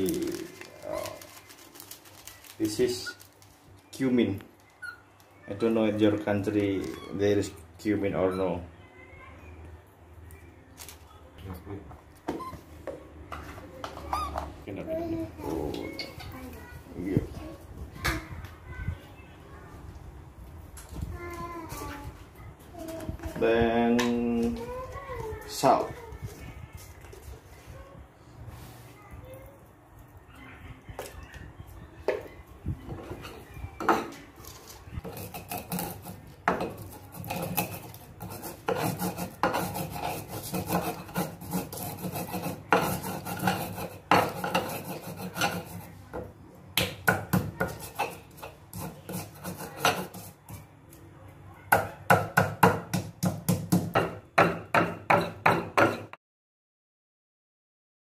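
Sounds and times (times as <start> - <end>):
stone pestle grinding in mortar: 35.0 - 46.0, 47.2 - 50.5.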